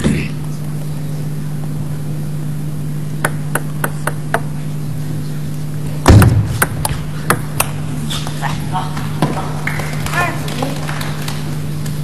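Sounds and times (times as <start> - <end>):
low hum: 0.0 - 10.1
loud thump: 6.1 - 7.1.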